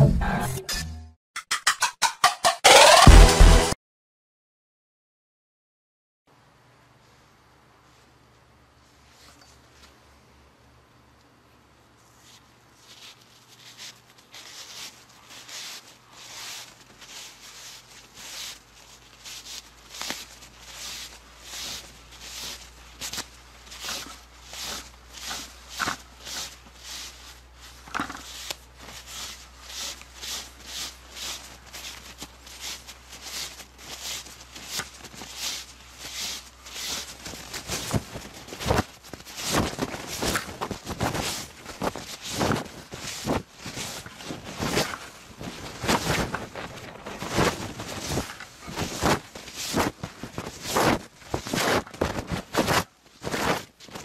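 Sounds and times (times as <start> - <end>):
paper napkin rustling and crinkling: 12.0 - 54.0.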